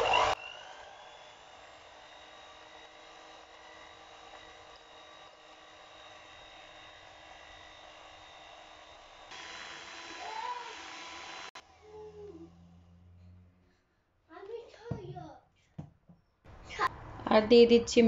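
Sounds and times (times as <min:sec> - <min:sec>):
electric hand mixer whisking: 0:00.0 - 0:12.8.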